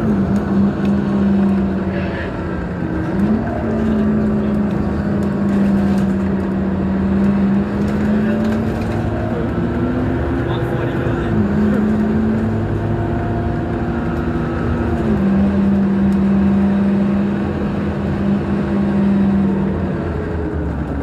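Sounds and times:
bus engine drone: 0.0s - 21.0s
road noise: 0.0s - 21.0s.

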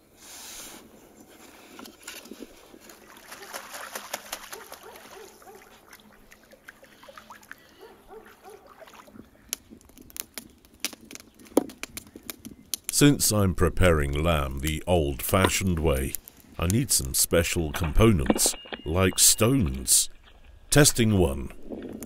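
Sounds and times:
ducks splashing in water: 2.8s - 9.3s
wood fire crackling: 9.1s - 22.0s.

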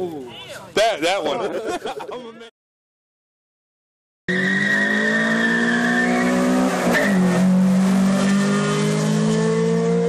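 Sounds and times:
cars accelerating at full throttle: 4.3s - 10.0s.

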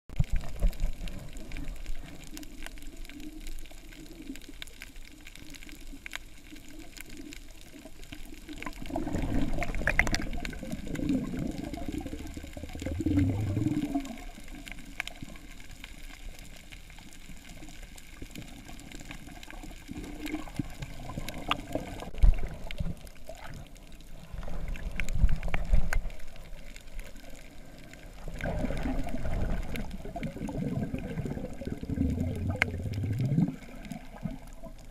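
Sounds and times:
faint underwater clicks: 0.1s - 34.9s
muffled underwater water wash: 0.1s - 34.9s
low water surges: 0.2s - 34.9s.

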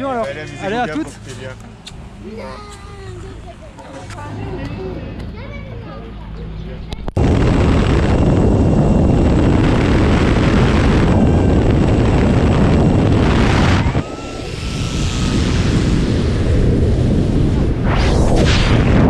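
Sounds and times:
plane engine and wind noise: 0.0s - 19.0s
rushing wind of freefall: 7.2s - 19.0s.

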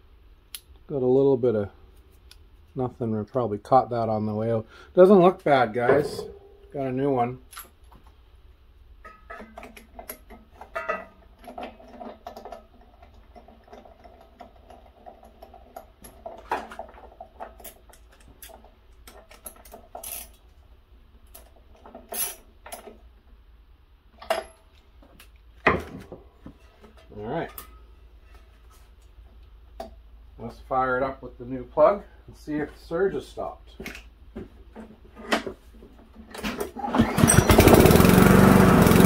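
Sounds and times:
hand tools clinking on metal: 5.8s - 6.6s.

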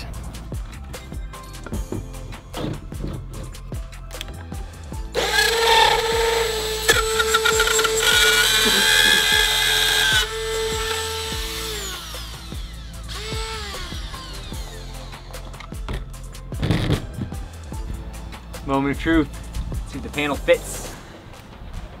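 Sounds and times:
background music: 0.0s - 22.0s
rotary tool whining and cutting plastic: 5.1s - 17.2s.

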